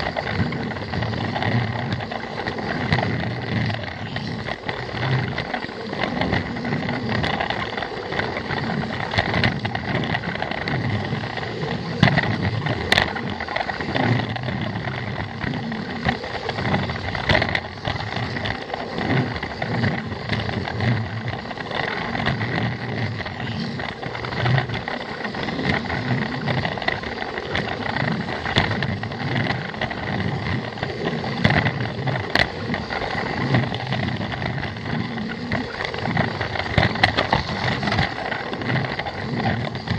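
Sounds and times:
toy train motor whirring: 0:00.0 - 0:39.9.

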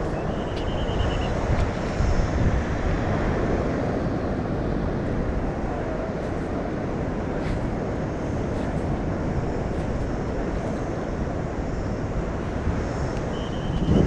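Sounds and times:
sea surf: 0:00.0 - 0:14.0
wind buffeting microphone: 0:00.0 - 0:14.0.

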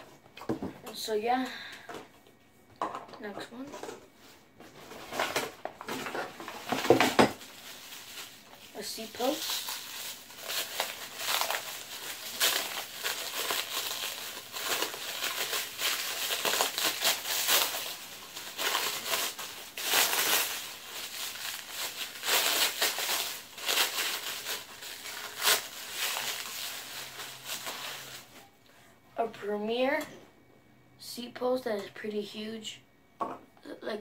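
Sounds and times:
plastic bag crinkling: 0:04.9 - 0:28.4.

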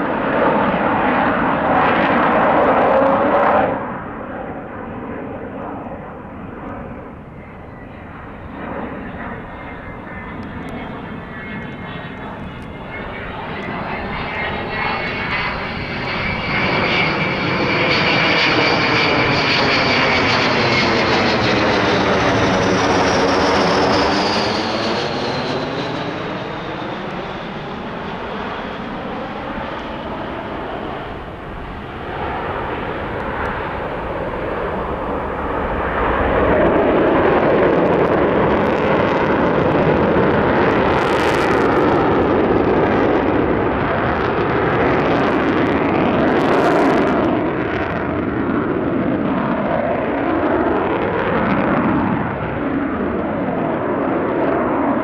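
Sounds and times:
jet aircraft flying past: 0:00.0 - 0:55.0.

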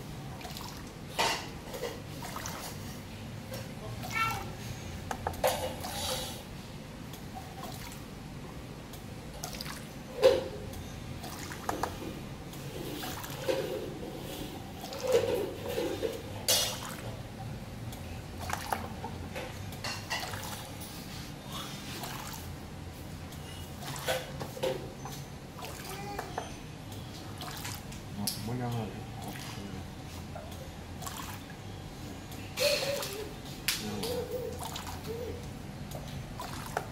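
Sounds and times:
trickling liquid: 0:00.0 - 0:04.7, 0:07.0 - 0:36.9.

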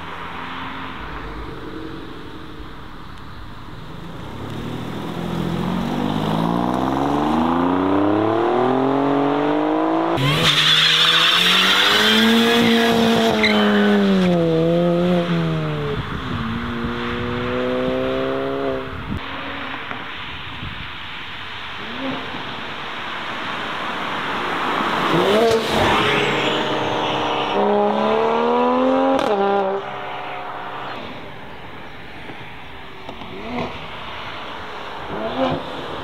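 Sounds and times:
car engine revving: 0:00.0 - 0:19.9, 0:24.8 - 0:31.8
tyres squealing: 0:10.2 - 0:14.0.

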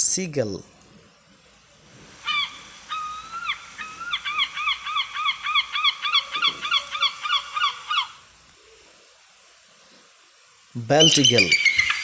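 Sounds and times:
gull calling: 0:02.2 - 0:08.3, 0:11.0 - 0:12.0.

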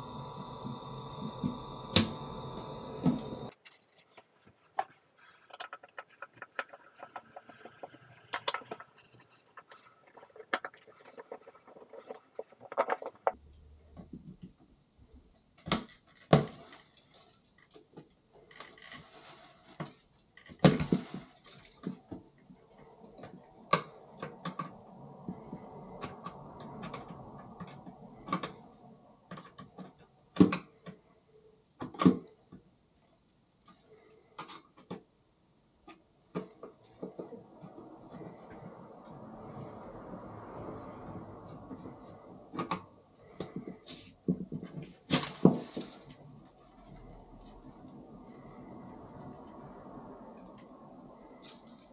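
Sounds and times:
plastic rustling: 0:16.0 - 0:24.2, 0:43.8 - 0:48.6.

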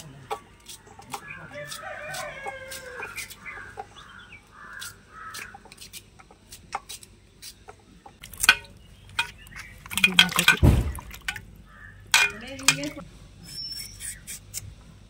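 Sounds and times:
knife cutting plantain: 0:00.0 - 0:03.7, 0:04.7 - 0:07.6
bird calls: 0:00.3 - 0:05.7, 0:08.6 - 0:12.8
pieces clicking into steel bowl: 0:08.2 - 0:10.6, 0:12.2 - 0:13.0
sharp knock: 0:10.6 - 0:11.1.

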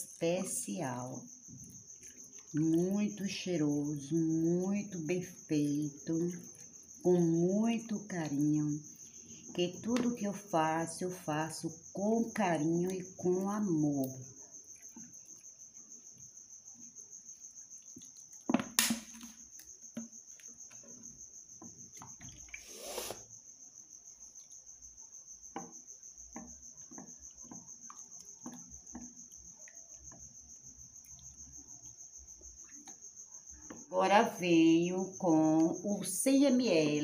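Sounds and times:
cricket chirping: 0:00.0 - 0:37.0
spoon stirring in glass bowl: 0:25.5 - 0:33.0.

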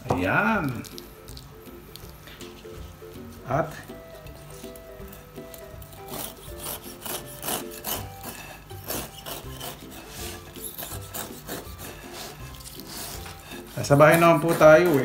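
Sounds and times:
knife sawing through cake: 0:04.2 - 0:15.0.

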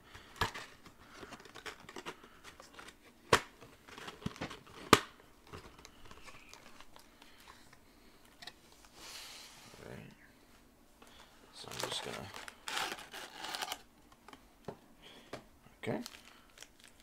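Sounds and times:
cardboard crinkling and rustling: 0:00.3 - 0:07.1, 0:11.6 - 0:13.8.

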